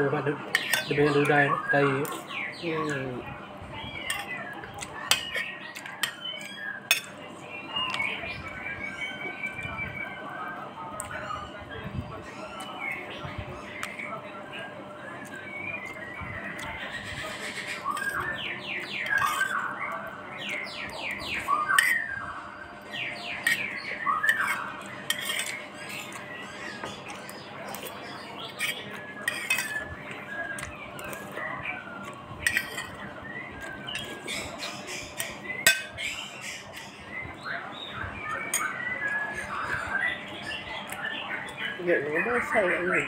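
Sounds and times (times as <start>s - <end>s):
spoons and dishes clinking: 5.1s - 7.2s, 24.3s - 26.2s, 28.6s - 29.9s, 32.4s - 33.0s.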